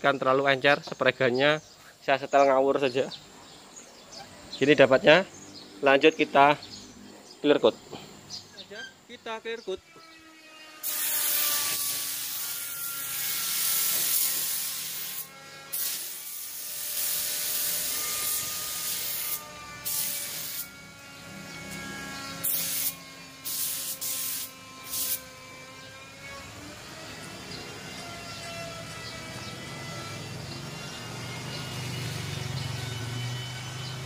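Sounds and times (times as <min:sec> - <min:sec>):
spray gun hissing: 0:10.8 - 0:20.8, 0:22.4 - 0:25.3.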